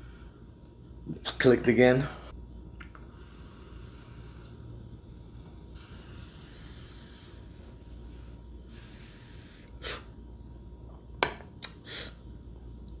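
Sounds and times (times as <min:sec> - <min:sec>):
breath drawn through vaporizer: 0:03.0 - 0:10.1.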